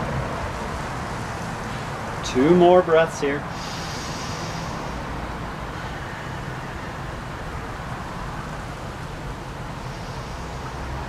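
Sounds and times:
rumble and hiss: 0:00.0 - 0:11.0
low hum: 0:03.4 - 0:11.0.

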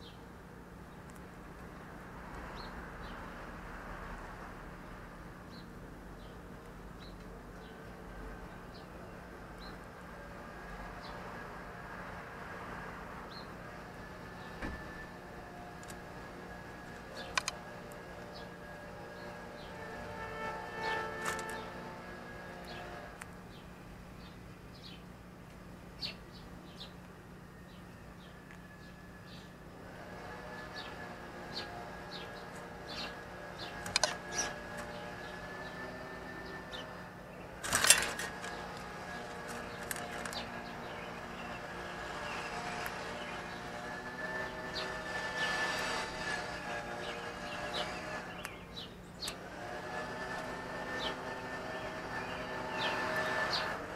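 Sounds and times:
sharp clicks: 0:16.9 - 0:18.3, 0:33.8 - 0:35.0.

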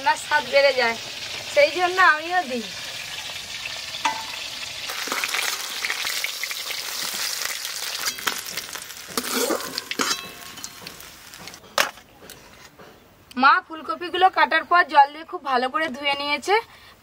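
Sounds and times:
hot oil sizzling in a wok: 0:00.0 - 0:11.6
metal spatula scraping a pan: 0:07.9 - 0:12.8.

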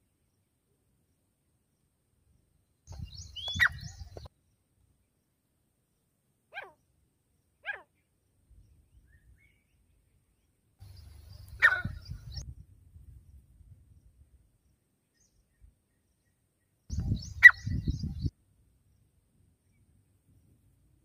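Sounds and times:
francolin calling: 0:02.9 - 0:04.3, 0:10.8 - 0:12.4, 0:16.9 - 0:18.3.

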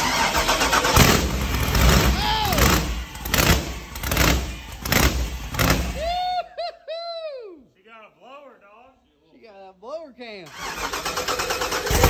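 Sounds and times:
loud engine revving: 0:00.0 - 0:06.1, 0:10.5 - 0:12.0.

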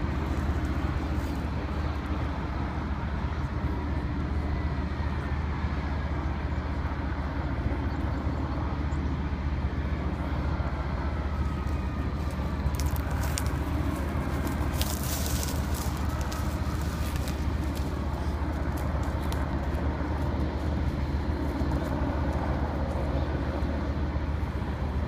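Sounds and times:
highway traffic rumble: 0:00.0 - 0:25.0
sharp crackles: 0:12.2 - 0:20.3.

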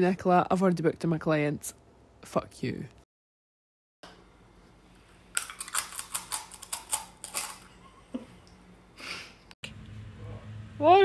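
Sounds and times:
carrot crunching: 0:05.3 - 0:07.7.

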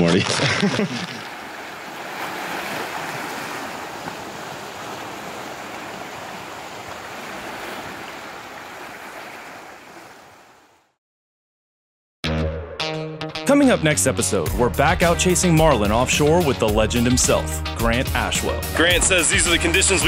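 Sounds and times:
small waves washing against rocks: 0:00.9 - 0:10.6.

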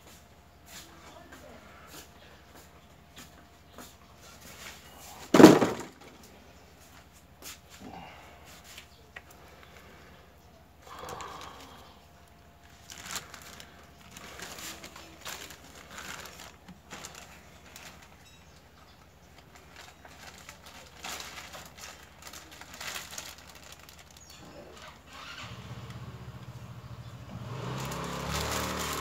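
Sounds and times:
plastic and paper crinkling: 0:04.2 - 0:07.8, 0:10.9 - 0:25.1, 0:27.5 - 0:29.0.

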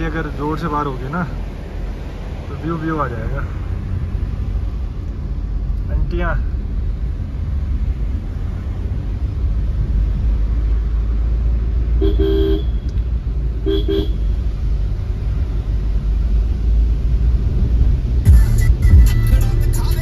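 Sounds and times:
car driving on road: 0:00.0 - 0:20.0
car horn honking: 0:12.0 - 0:13.0, 0:13.6 - 0:14.4.

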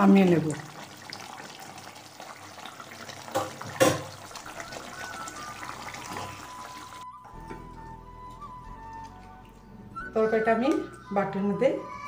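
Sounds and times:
curry bubbling in pan: 0:00.0 - 0:07.2
utensil knocking against pan: 0:03.3 - 0:04.1.

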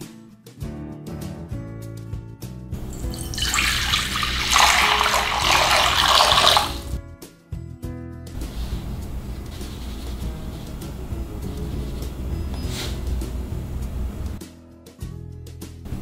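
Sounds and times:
water splashing into glass bowl: 0:02.8 - 0:07.0.

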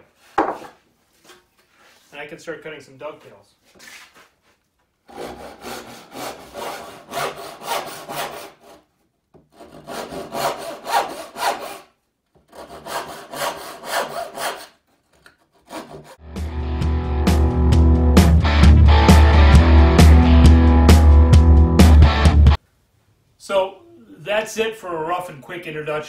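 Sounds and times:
hand saw cutting wood: 0:05.1 - 0:16.2.

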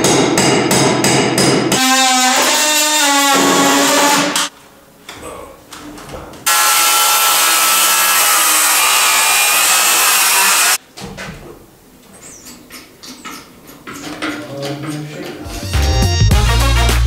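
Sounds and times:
power saw cutting wood: 0:06.5 - 0:10.8.

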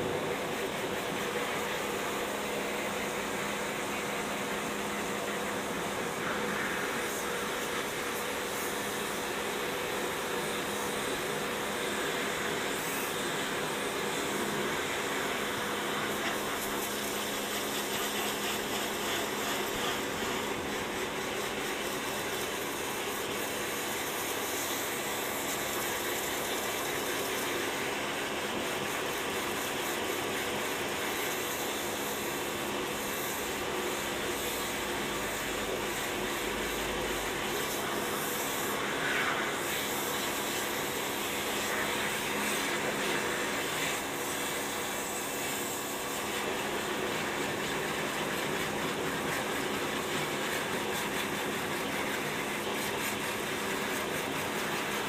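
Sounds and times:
pressure washer pump humming: 0:00.0 - 0:55.0
water jet spraying on gravel: 0:12.6 - 0:55.0.

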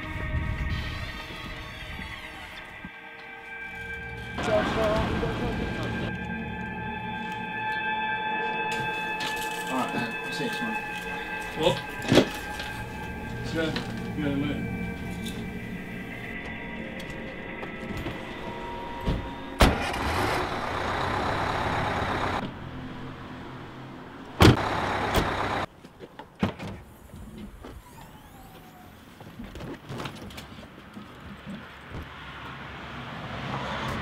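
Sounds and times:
car doors shutting: 0:19.0 - 0:20.4, 0:24.4 - 0:25.6.

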